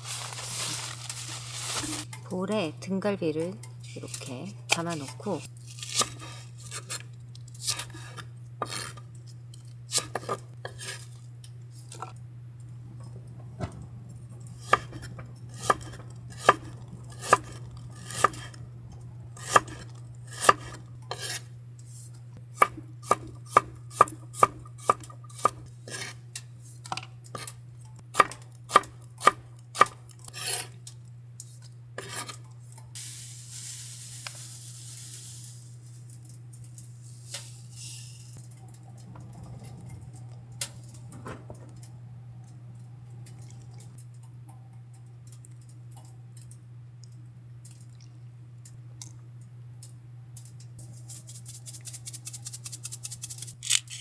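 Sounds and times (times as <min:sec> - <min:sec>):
short soft hiss: 0:33.0 - 0:35.8.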